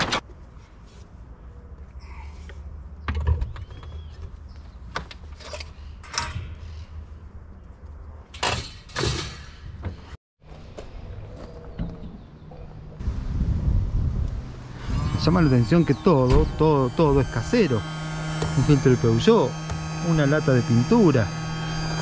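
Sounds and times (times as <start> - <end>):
low rumble: 12.8 - 22.0.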